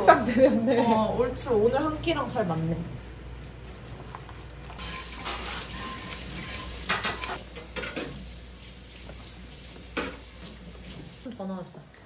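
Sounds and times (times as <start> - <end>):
utensil stirring and scraping pan: 4.8 - 11.2
food sizzling in a pan: 4.8 - 11.3.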